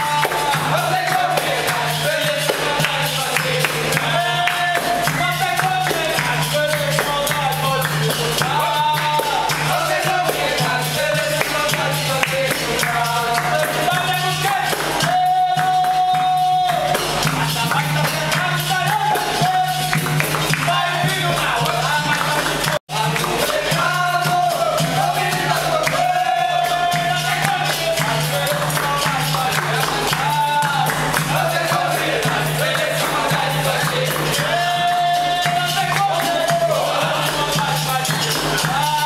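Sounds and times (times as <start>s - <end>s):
hand clapping: 0.0s - 39.0s
hand drum: 0.0s - 39.0s
tambourine: 0.0s - 39.0s
voices singing: 0.0s - 39.0s.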